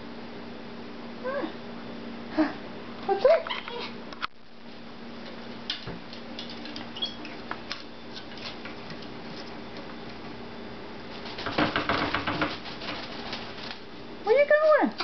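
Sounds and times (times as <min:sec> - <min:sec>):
parrot wings flapping: 0:11.1 - 0:13.9.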